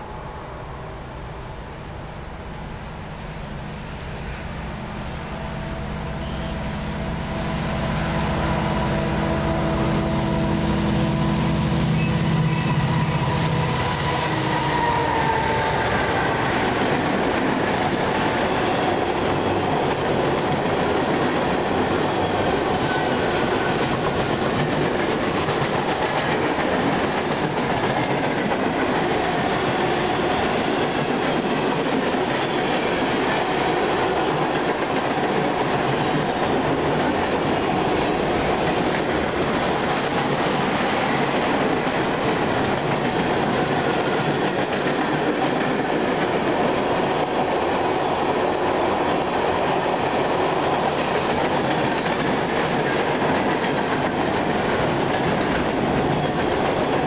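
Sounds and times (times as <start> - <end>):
diesel locomotive engine drone: 0.0 - 57.0
train wheels clattering on rails: 13.3 - 57.0.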